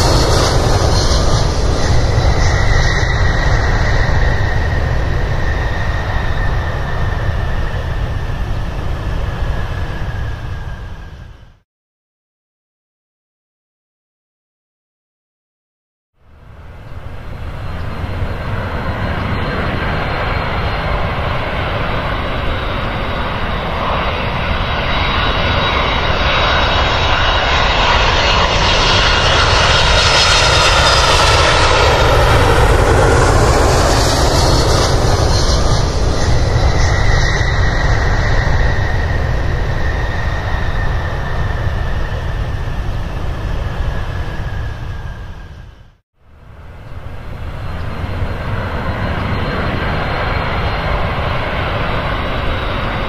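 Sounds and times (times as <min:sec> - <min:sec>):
high whine sliding down: 0:00.0 - 0:11.6
jet engines roaring at takeoff: 0:00.0 - 0:11.6, 0:16.2 - 0:53.0.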